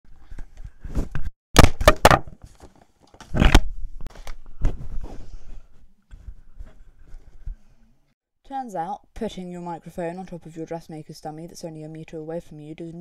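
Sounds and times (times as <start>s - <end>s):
hands rustling and scraping microphone: 0.1s - 1.3s, 2.4s - 8.0s.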